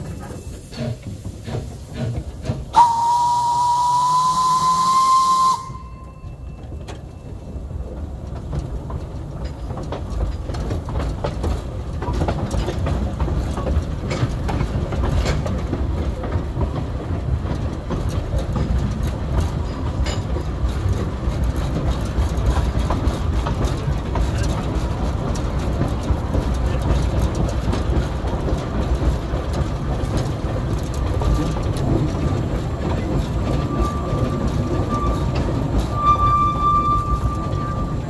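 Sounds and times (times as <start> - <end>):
steam locomotive rumbling and rattling: 0.0 - 38.0
wheels clicking on rail: 0.0 - 38.0
steam whistle: 2.7 - 6.4, 33.6 - 38.0.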